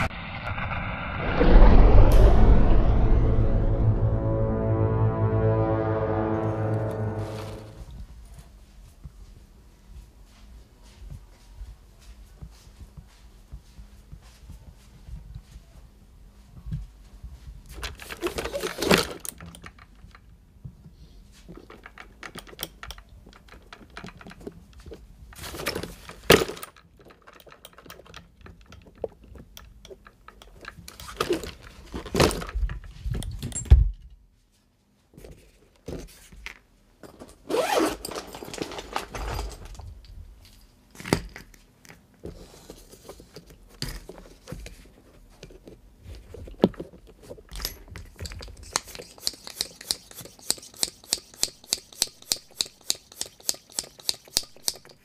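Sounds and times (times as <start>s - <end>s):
tools clattering and scraping: 17.7s - 20.3s, 21.4s - 33.8s, 35.3s - 55.0s.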